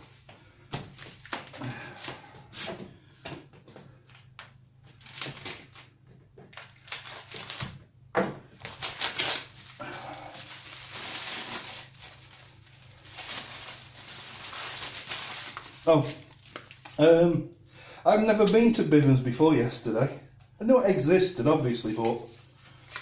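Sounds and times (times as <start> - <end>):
polystyrene packing handled: 0.1 - 2.7, 4.1 - 7.8, 8.5 - 17.0, 21.8 - 23.0
plastic bag crinkling: 4.9 - 7.8, 8.5 - 17.0.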